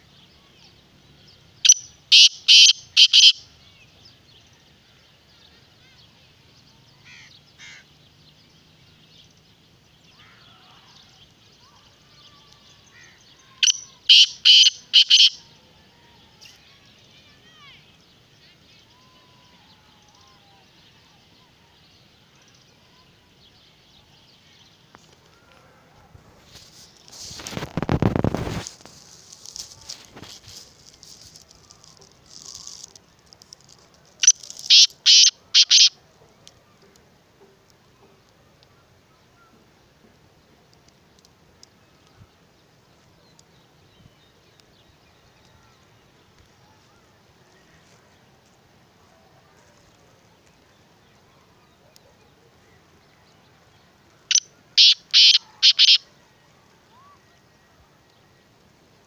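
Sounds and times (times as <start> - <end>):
bird harsh call: 1.6 - 3.4, 12.8 - 15.4, 34.2 - 36.0, 54.3 - 56.1
francolin rasping call: 1.6 - 3.5, 10.2 - 16.6, 29.3 - 36.0, 54.2 - 56.2.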